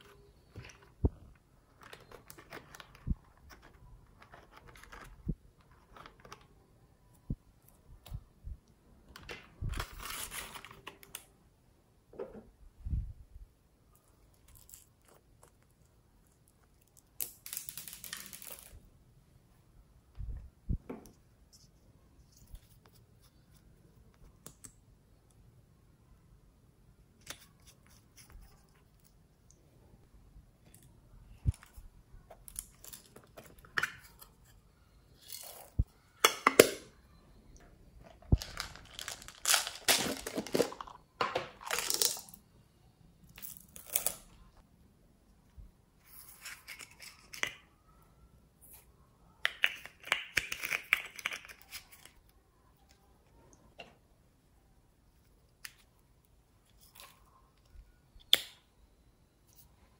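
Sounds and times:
plastic containers clicking and rustling: 0.3s - 6.6s, 38.0s - 42.3s.

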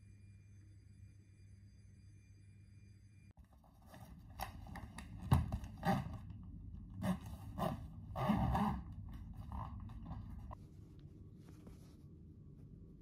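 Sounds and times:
suitcase zipper rasping: 5.7s - 6.3s, 7.0s - 10.6s.

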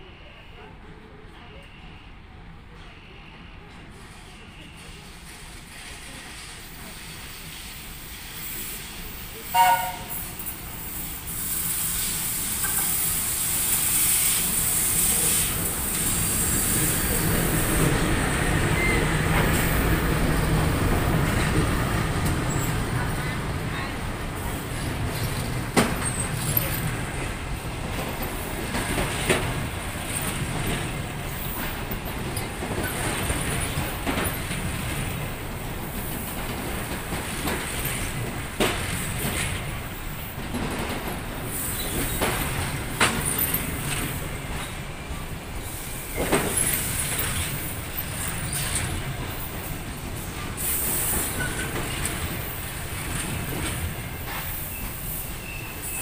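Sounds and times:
train wheels rumbling: 4.2s - 56.0s
high wheel squeal: 54.2s - 56.0s.

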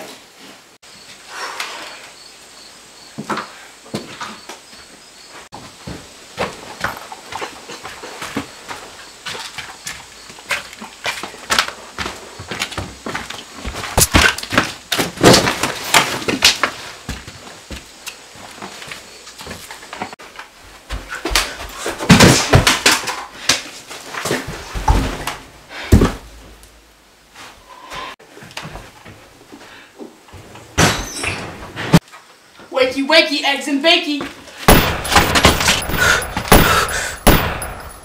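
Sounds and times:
footsteps crunching on debris: 5.6s - 21.8s.

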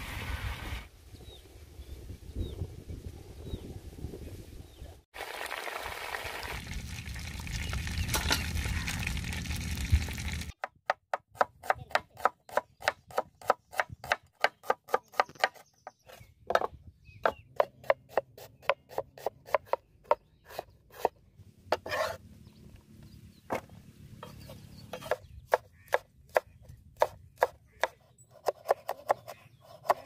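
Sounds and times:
food sizzling in hot oil: 5.2s - 10.6s
cleaver chopping on wooden board: 10.6s - 15.6s.

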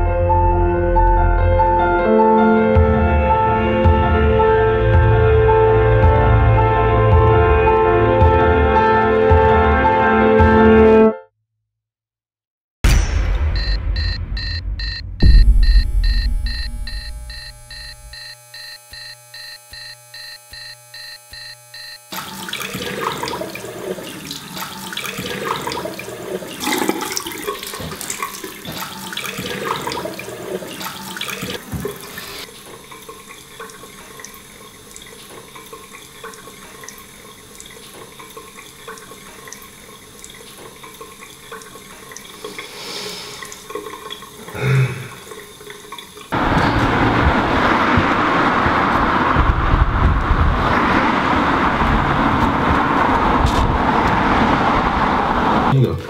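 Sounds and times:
loud thud: 12.8s - 17.0s
alarm beeping: 13.5s - 22.1s
water splashing on face: 22.2s - 51.2s
tap running into sink: 26.6s - 30.2s, 30.8s - 34.4s.

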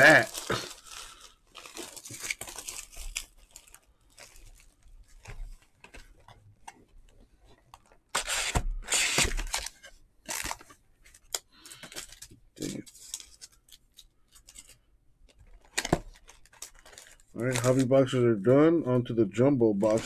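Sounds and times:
wrappers tearing and crinkling: 0.0s - 6.2s, 7.8s - 14.8s, 15.4s - 17.9s.

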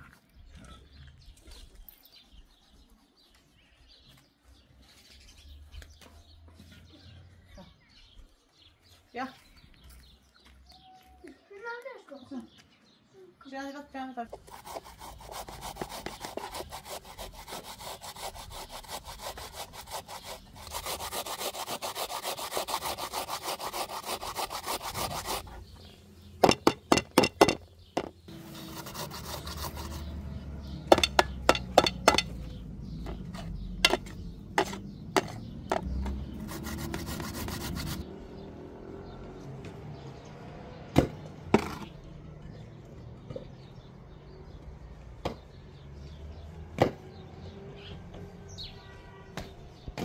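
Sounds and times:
potato rasping on grater: 14.4s - 25.4s, 28.4s - 30.1s, 33.4s - 38.0s.

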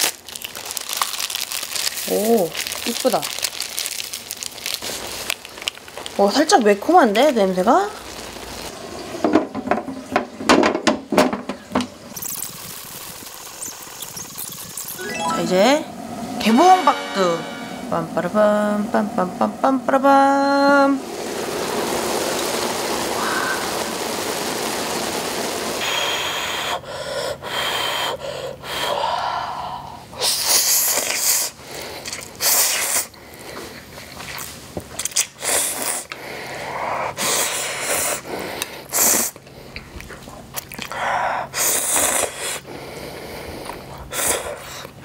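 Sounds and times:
steady hiss: 15.9s - 26.9s.

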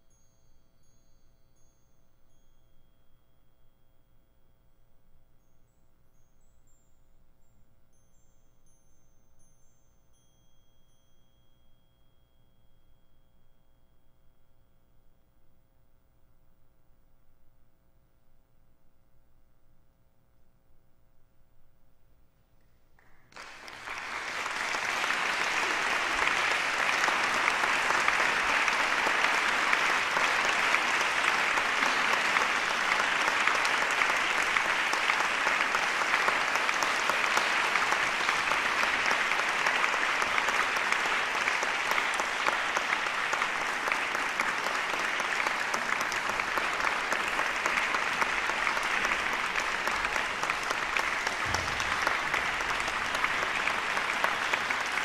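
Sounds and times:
audience applauding: 23.0s - 55.0s.

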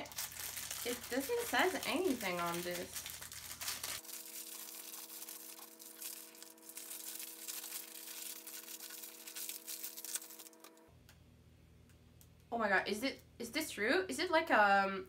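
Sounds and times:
plastic bag crinkling and tearing: 0.0s - 10.8s
faint steady hum: 0.0s - 15.0s.

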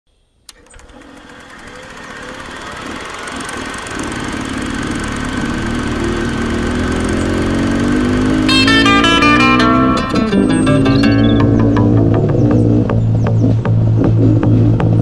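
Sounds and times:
dirt bike engine running: 0.6s - 15.0s
guitar music: 5.6s - 14.8s.

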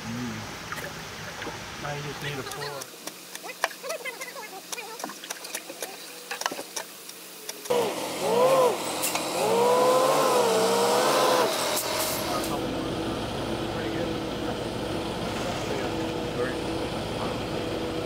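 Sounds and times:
diesel truck engine revving: 7.7s - 18.0s.

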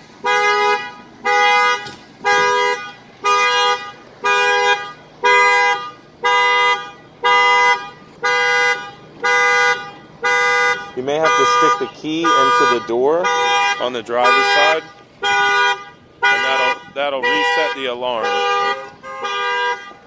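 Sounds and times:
car horn honking: 0.1s - 20.0s.

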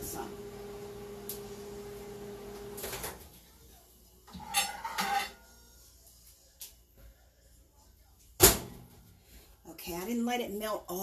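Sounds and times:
microwave oven humming: 0.0s - 3.2s
dish clattering: 4.3s - 5.4s.

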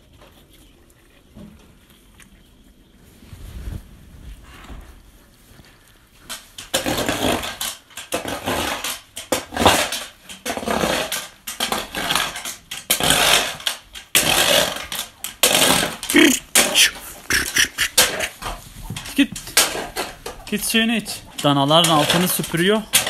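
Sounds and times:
broom scraping barn floor: 3.0s - 7.6s.

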